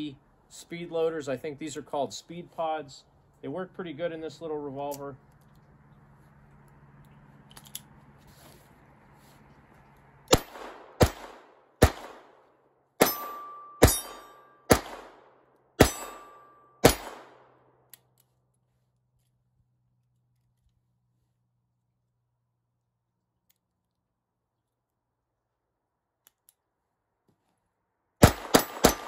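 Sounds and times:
metallic ring of steel targets: 0:13.0 - 0:15.1, 0:15.8 - 0:17.4, 0:28.2 - 0:29.0.

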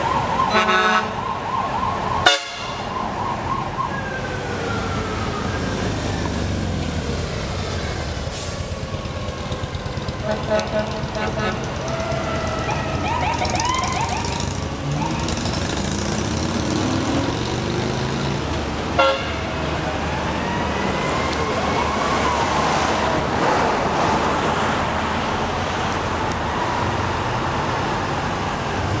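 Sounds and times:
emergency vehicle sirens wailing: 0:00.0 - 0:29.0
vehicle engines and road noise: 0:00.0 - 0:29.0
loud horn blast: 0:00.5 - 0:01.2, 0:02.2 - 0:02.8, 0:10.2 - 0:12.3, 0:19.0 - 0:19.6.

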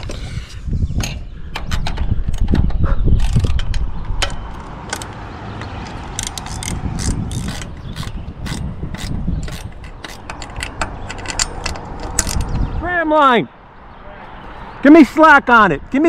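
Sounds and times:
metallic clicks of hand tools: 0:03.2 - 0:05.2, 0:06.1 - 0:12.5.

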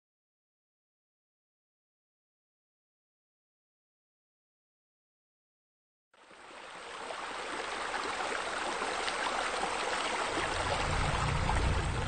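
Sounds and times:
water rushing and bubbling: 0:06.3 - 0:12.0
low rumble of jets: 0:10.4 - 0:12.0.

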